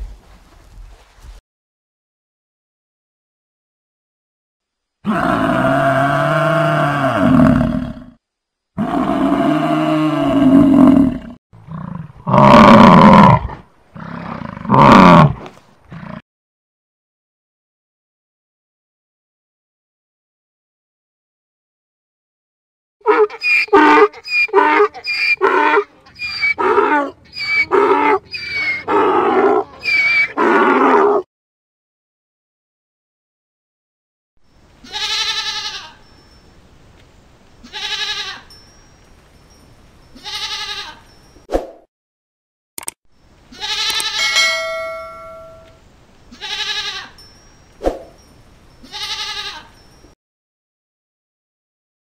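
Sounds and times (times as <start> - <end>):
donkey braying: 23.0 - 31.2, 43.6 - 45.8
buffalo bellowing: 43.9 - 45.8.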